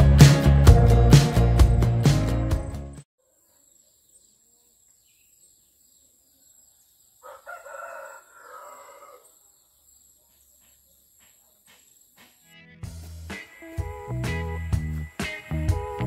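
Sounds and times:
background music: 0:00.0 - 0:03.0, 0:12.5 - 0:16.0
rooster crowing: 0:07.2 - 0:09.6.

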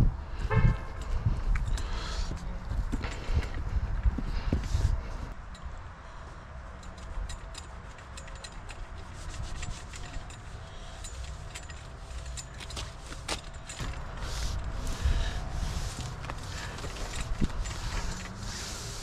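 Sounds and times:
hands rubbing wrap on dashboard: 0:07.7 - 0:19.0.

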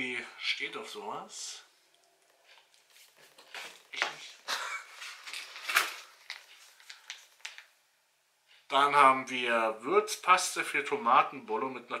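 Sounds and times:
packaging rustling: 0:02.2 - 0:07.7.

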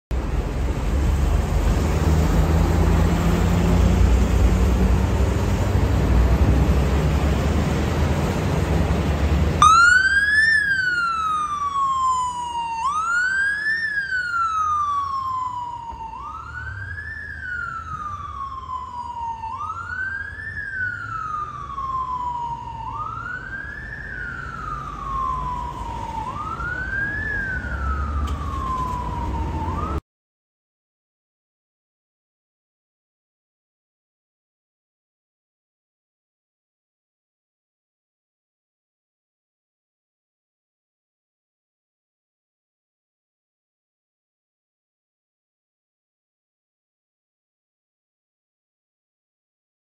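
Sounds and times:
road and engine rumble: 0:00.1 - 0:30.0
motorcycle siren wailing: 0:09.6 - 0:30.0.

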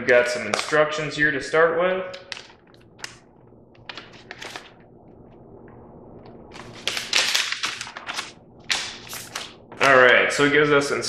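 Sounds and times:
paper sheets rustling: 0:03.8 - 0:04.8, 0:06.5 - 0:10.1.

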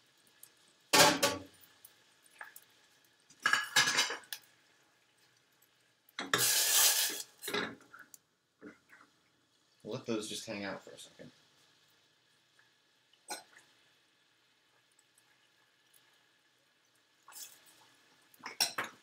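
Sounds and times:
dishes and pans clattering: 0:01.0 - 0:01.5, 0:03.4 - 0:04.3, 0:07.4 - 0:07.8, 0:18.5 - 0:19.0.

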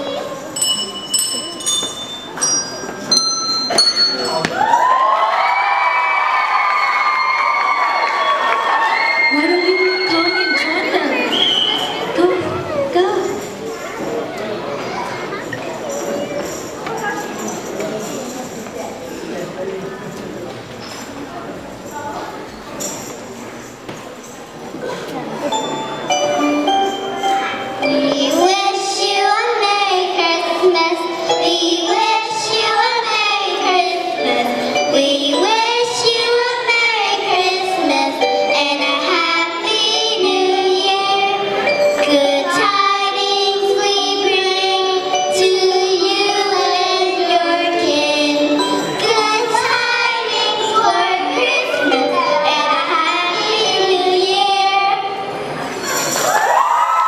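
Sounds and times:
musical accompaniment: 0:25.3 - 0:56.3
children singing: 0:26.1 - 0:55.5.

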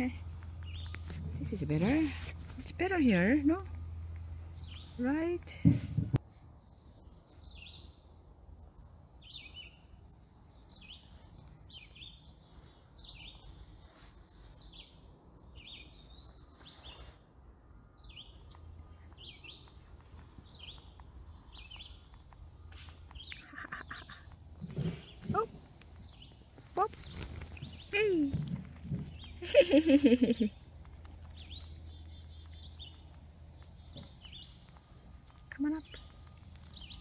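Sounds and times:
outdoor background noise: 0:00.0 - 0:37.0
bird chirps: 0:17.8 - 0:37.0.

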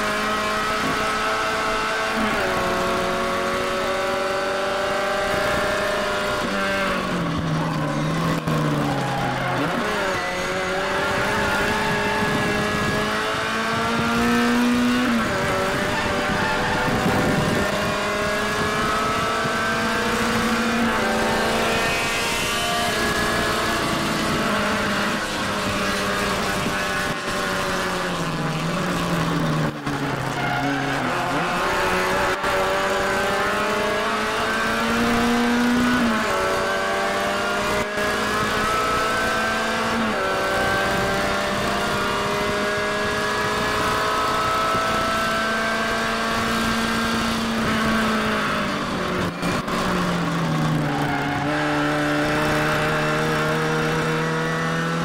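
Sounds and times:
car engine revving high: 0:00.0 - 0:55.0.

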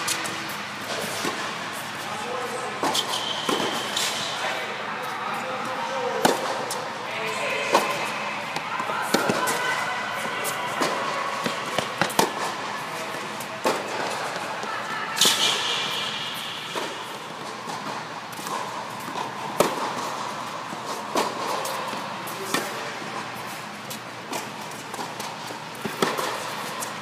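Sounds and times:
tennis ball bouncing: 0:00.0 - 0:01.6, 0:02.8 - 0:04.2, 0:06.2 - 0:06.8, 0:07.6 - 0:09.6, 0:10.4 - 0:12.6, 0:13.2 - 0:14.5, 0:15.2 - 0:22.8, 0:23.4 - 0:26.9
racket hitting tennis ball: 0:00.0 - 0:02.1, 0:02.8 - 0:04.4, 0:06.2 - 0:06.9, 0:07.6 - 0:27.0.

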